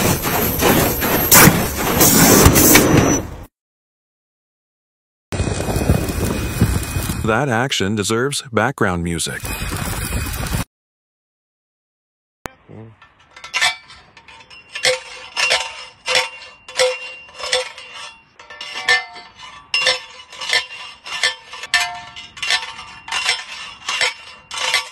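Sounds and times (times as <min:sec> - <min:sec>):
ringing metallic clanks: 0:13.0 - 0:24.9.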